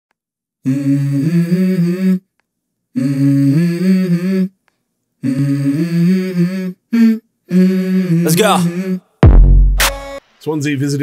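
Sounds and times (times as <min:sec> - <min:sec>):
person humming low notes: 0:00.6 - 0:02.3, 0:02.9 - 0:04.6, 0:05.2 - 0:09.7.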